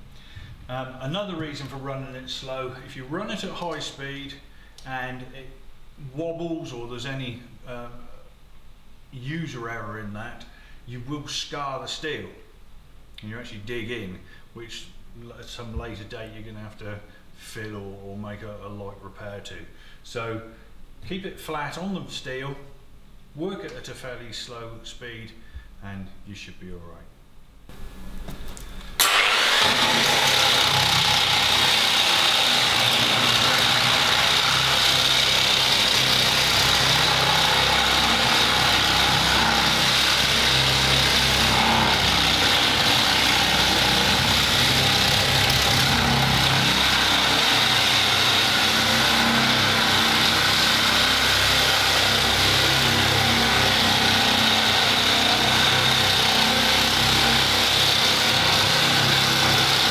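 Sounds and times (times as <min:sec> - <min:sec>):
angle grinder grinding paint off steel: 0:29.0 - 0:59.9.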